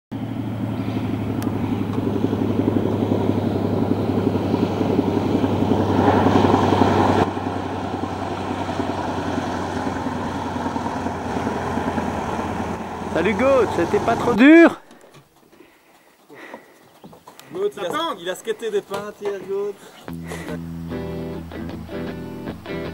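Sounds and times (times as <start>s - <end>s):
propeller plane engine: 0.1s - 14.5s, 20.0s - 22.9s.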